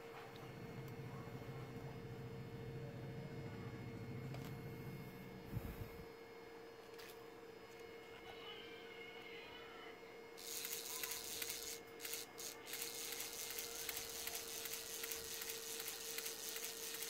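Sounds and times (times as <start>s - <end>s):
camera shutter motor whirring: 10.4s - 17.0s.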